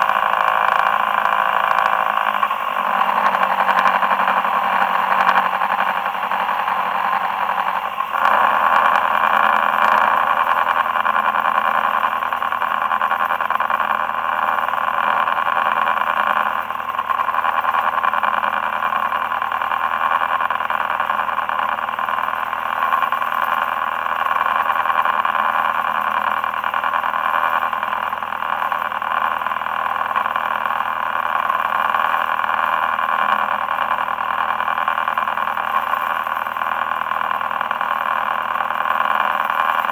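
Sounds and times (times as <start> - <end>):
boat engine running: 0.0 - 15.3.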